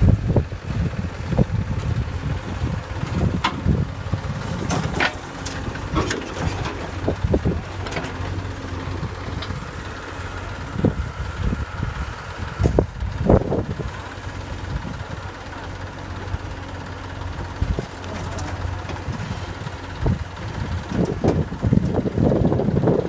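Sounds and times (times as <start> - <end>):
diesel engine running: 0.0 - 23.0
earth dropping into steel trolley: 4.4 - 8.6.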